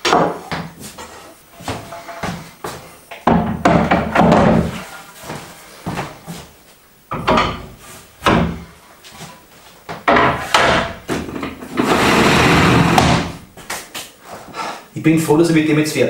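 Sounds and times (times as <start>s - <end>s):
wooden boards knocking on workbench: 0.0s - 0.7s, 3.1s - 4.8s, 7.1s - 8.7s, 9.9s - 12.0s, 12.8s - 13.4s.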